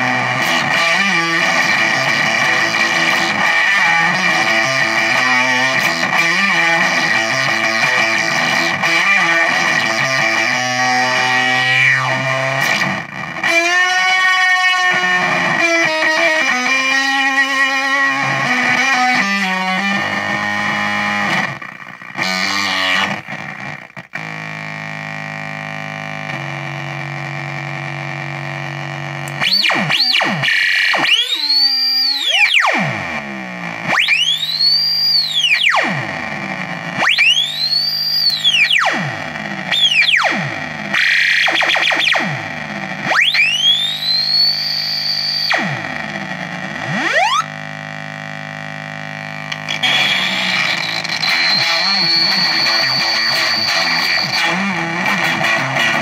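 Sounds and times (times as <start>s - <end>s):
distorted electric guitar: 0.0s - 56.0s
squealing oscillation sweeping pitch: 30.9s - 32.8s, 46.9s - 47.5s, 49.6s - 54.6s.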